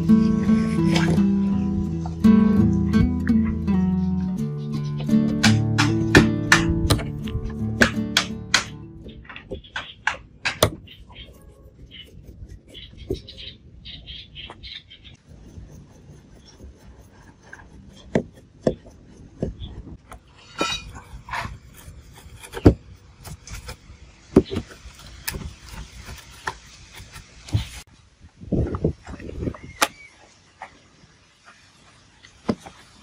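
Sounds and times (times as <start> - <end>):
knocks on wooden board: 5.4 - 7.1
metallic scraping: 15.2 - 23.8
metal tools clicking and scraping: 20.3 - 21.5.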